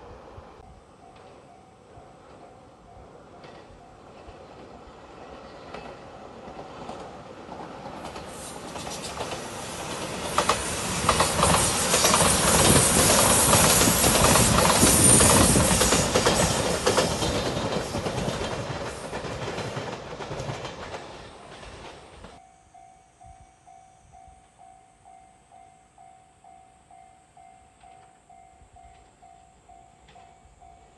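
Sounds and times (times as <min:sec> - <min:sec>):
electric train passing: 0:00.0 - 0:30.9
wheels clacking over rail joints: 0:03.3 - 0:22.4.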